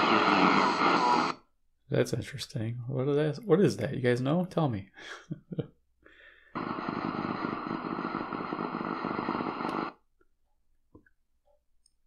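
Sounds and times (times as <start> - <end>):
radio static: 0.0 - 1.4, 6.6 - 10.0.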